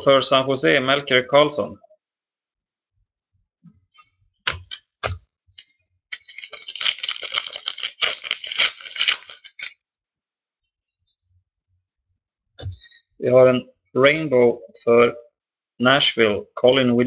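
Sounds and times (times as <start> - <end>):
wrapper crinkling and tearing: 6.1 - 9.8.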